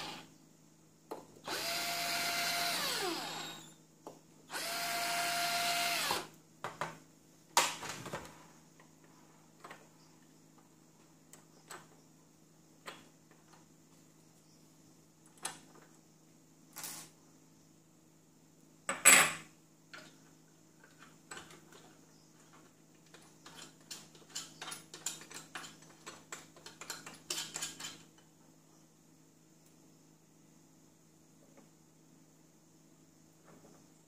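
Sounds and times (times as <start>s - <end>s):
metal tool and screws clicking: 23.1s - 28.0s.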